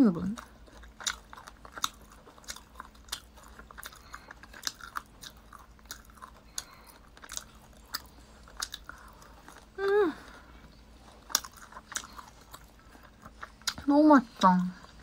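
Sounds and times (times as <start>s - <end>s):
person chewing meat: 0.3s - 15.0s.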